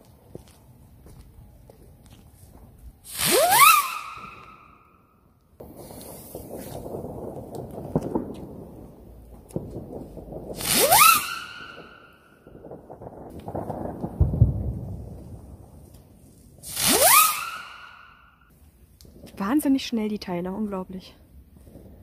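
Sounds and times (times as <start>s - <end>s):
whistling firework whoosh: 3.0s - 14.0s, 16.3s - 18.5s.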